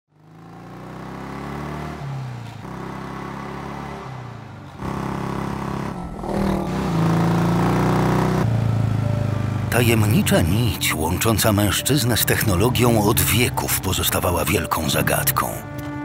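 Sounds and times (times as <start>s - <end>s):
motorcycle engine revving: 0.1s - 10.8s.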